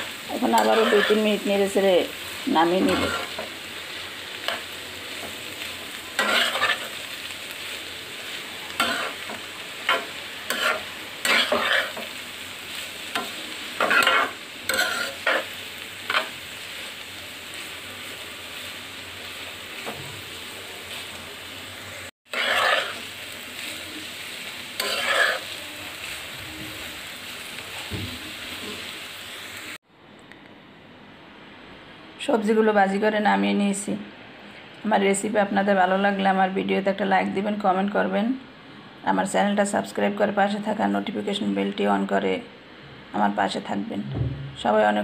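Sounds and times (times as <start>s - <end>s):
vegetables sizzling in a pan: 0.0s - 29.8s
scraping stirring strokes: 22.3s - 23.1s, 24.8s - 25.5s.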